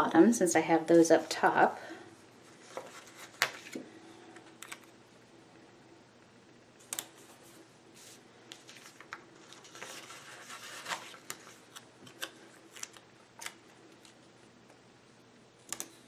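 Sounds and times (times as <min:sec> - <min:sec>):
paper rustling: 0:02.5 - 0:03.8, 0:07.2 - 0:14.2.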